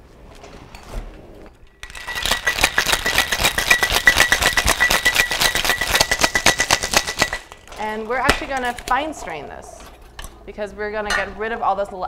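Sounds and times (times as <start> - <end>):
ice rattling in cocktail shaker: 1.8 - 10.3.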